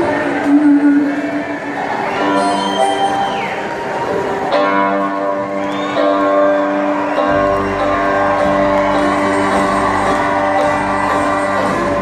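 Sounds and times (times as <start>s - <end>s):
live country band: 0.0s - 12.0s
bass: 4.6s - 12.0s.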